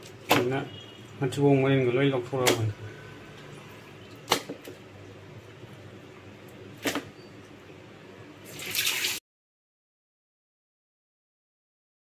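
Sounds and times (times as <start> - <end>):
water splashing: 8.4 - 9.2
rush of water: 8.5 - 9.2.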